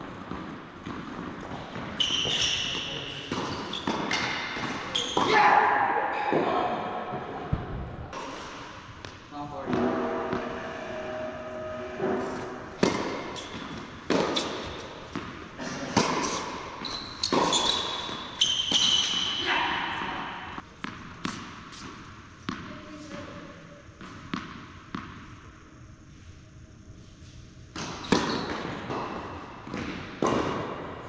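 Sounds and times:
racket striking tennis ball: 0.3 - 5.4, 12.0 - 22.7, 27.7 - 31.0
shoe squeaks on court: 1.9 - 5.2, 13.3 - 14.9, 16.2 - 19.4, 28.0 - 28.7
tennis ball bouncing: 3.0 - 5.3, 12.2 - 22.7, 24.0 - 25.4, 27.7 - 30.9.

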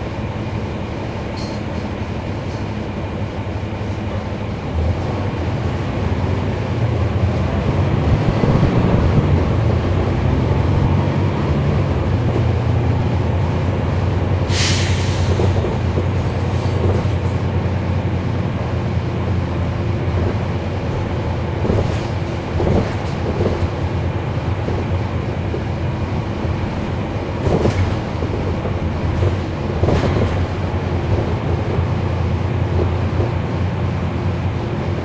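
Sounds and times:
bus diesel engine drone: 0.0 - 35.0
road rumble: 0.0 - 35.0
brief hiss: 14.5 - 15.4.

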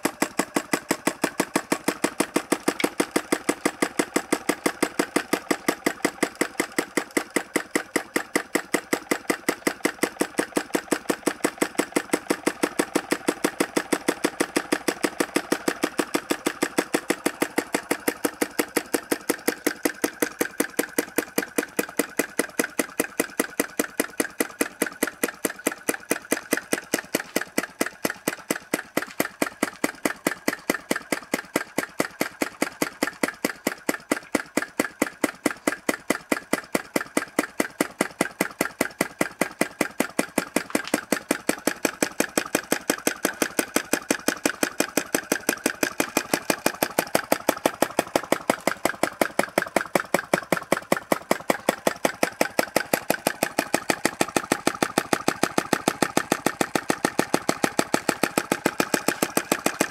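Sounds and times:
model engine clacking: 0.0 - 59.9.

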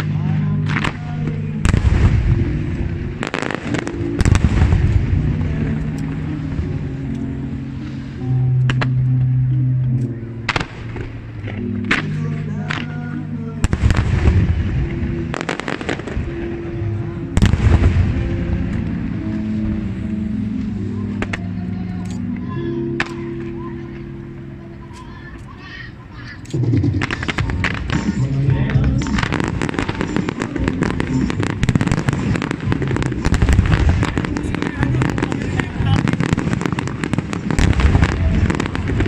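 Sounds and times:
fireworks bursting in sharp cracks: 0.0 - 6.9, 10.4 - 19.9, 26.4 - 39.0
continuous low rumble: 0.0 - 39.0
music playing: 0.0 - 39.0.

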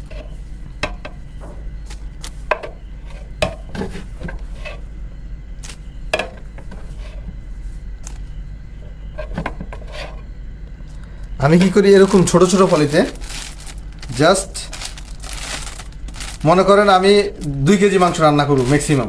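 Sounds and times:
low hum: 0.0 - 19.0
spoon scraping plastic jar: 18.0 - 19.0.

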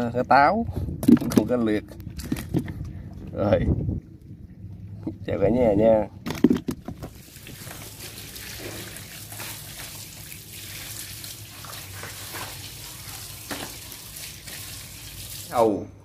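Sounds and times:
tap water splashing: 6.8 - 15.5.

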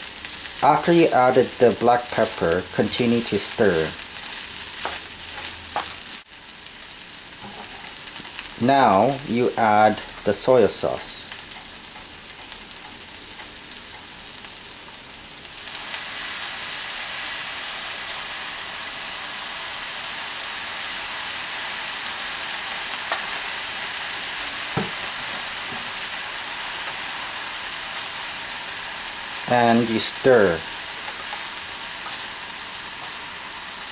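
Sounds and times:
fried rice sizzling in pan: 0.0 - 33.9
light knocks on pan: 24.8 - 25.0.

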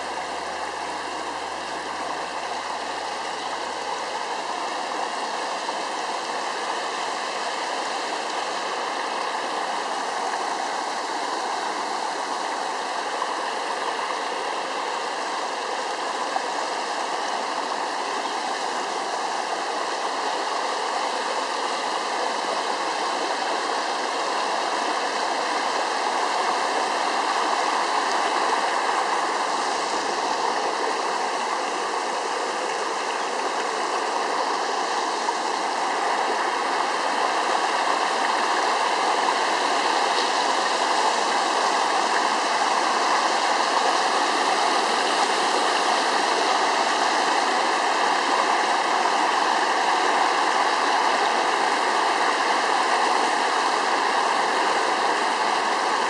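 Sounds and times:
river water rushing over rocks: 0.0 - 56.0.

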